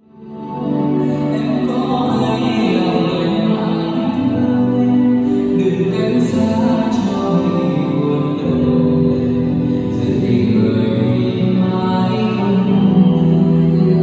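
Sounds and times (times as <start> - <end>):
slow music with held notes: 0.0 - 14.0.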